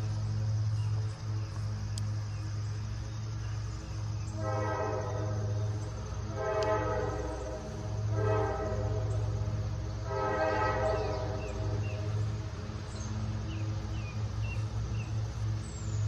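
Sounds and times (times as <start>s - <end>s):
diesel locomotive engine drone: 0.0s - 16.0s
locomotive horn blasts: 4.3s - 12.4s.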